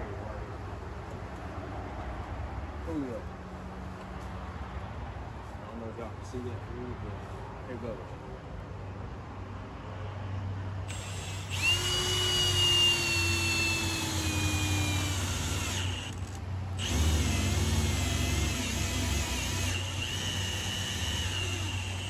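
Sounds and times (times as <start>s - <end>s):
cordless drill whining: 10.9s - 22.0s.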